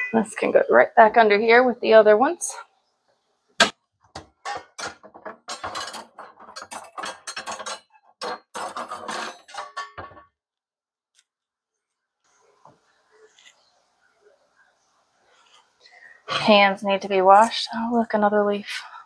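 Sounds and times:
dishes clattering: 3.6 - 10.3.

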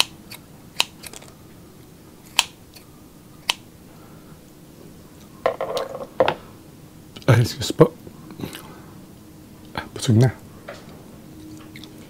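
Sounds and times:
scissors snipping: 0.0 - 1.4
handling noise: 5.4 - 6.4.

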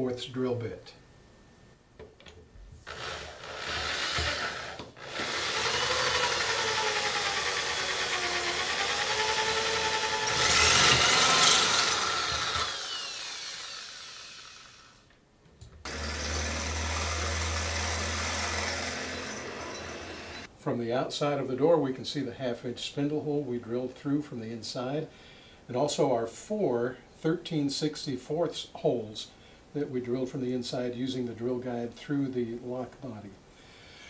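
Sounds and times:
power drill through metal door: 2.8 - 15.1, 15.8 - 20.5.

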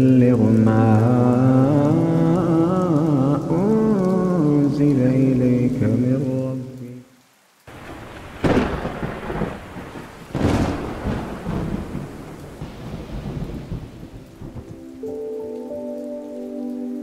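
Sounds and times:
steady rain: 0.0 - 17.0
thunder claps: 7.7 - 14.9.

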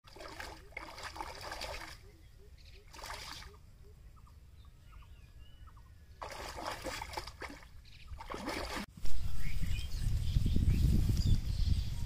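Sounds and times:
water splashing from thrashing fish: 0.1 - 2.0, 6.2 - 8.9.

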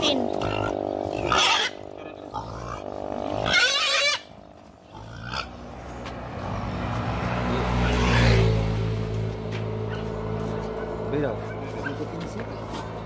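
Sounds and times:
vehicle engine running: 0.0 - 3.6, 4.3 - 13.0
pig squealing: 0.0 - 5.6.

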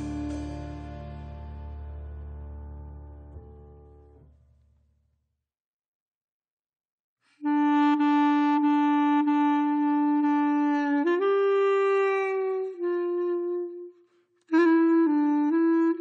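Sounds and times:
slow solo wind instrument melody: 0.0 - 2.5, 7.4 - 16.0.

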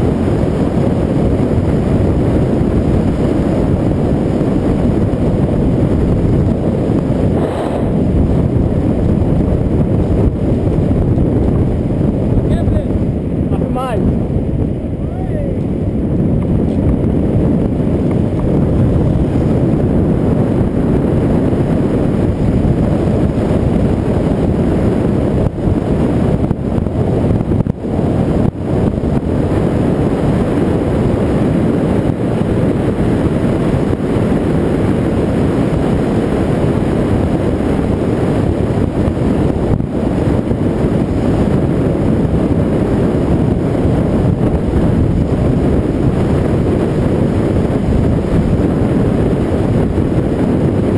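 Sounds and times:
wind rushing over microphone: 0.0 - 50.9.

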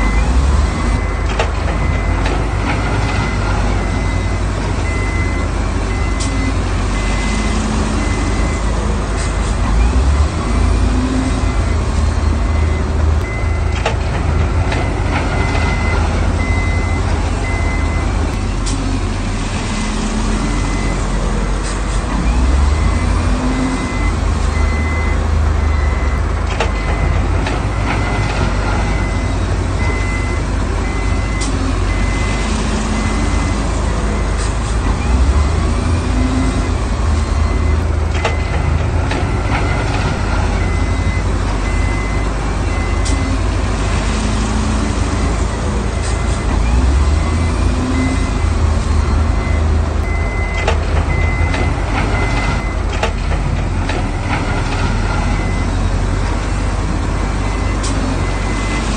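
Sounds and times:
reversing alarm beeping: 0.0 - 19.0, 19.6 - 21.4, 22.1 - 43.6, 44.5 - 56.6, 57.3 - 58.9
diesel engines under load: 0.0 - 58.9.

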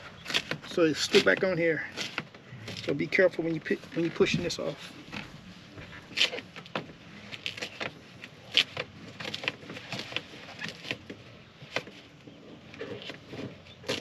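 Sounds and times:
plastic crackling and snapping: 0.0 - 14.0
plastic sheet peeling off sealant: 3.8 - 12.0.

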